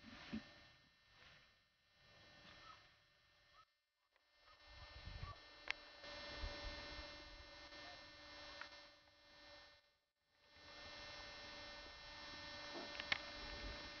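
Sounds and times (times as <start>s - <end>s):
faint electrical hum: 0.0s - 14.0s
faint clicks: 12.8s - 13.3s.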